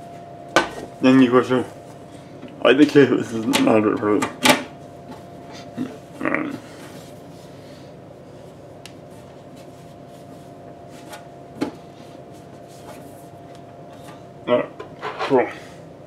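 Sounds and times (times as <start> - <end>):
faint hum: 0.0 - 16.0.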